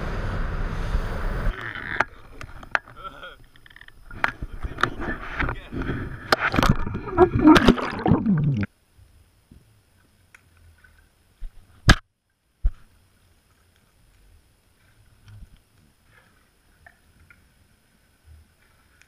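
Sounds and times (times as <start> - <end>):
muffled underwater rumble: 0.4 - 11.4.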